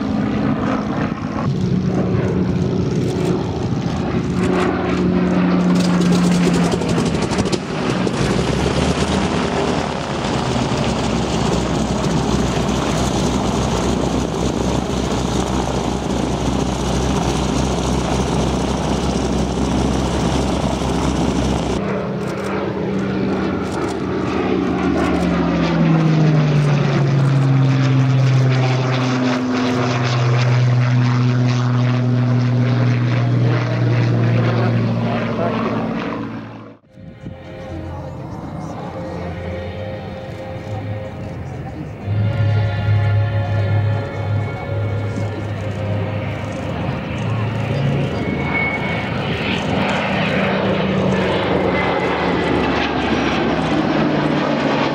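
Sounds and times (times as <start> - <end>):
propeller plane droning overhead: 0.0 - 54.9.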